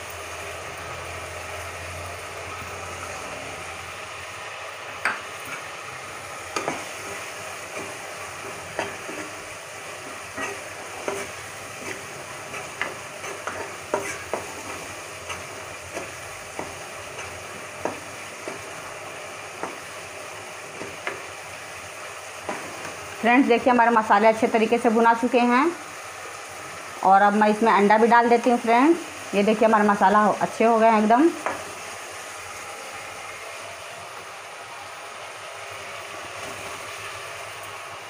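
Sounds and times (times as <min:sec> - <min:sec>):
food sizzling in a pan: 0:00.0 - 0:38.0
spoon scraping and knocking pan: 0:06.5 - 0:18.8, 0:19.5 - 0:20.0, 0:20.7 - 0:21.3.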